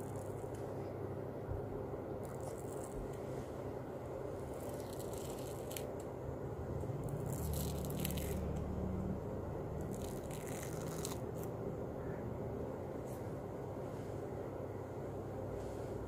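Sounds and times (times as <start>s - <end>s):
mask peeling off skin: 4.5s - 5.9s.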